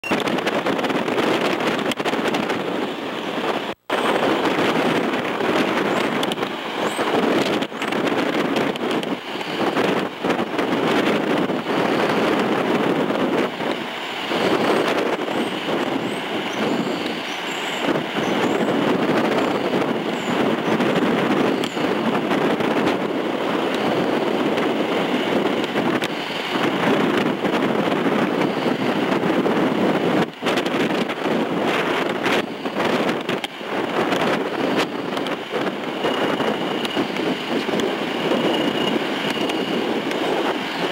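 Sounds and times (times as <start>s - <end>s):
cable car rushing rumble: 0.0s - 40.9s
wind buffeting microphone: 0.0s - 40.9s
faint high whine: 32.3s - 40.9s.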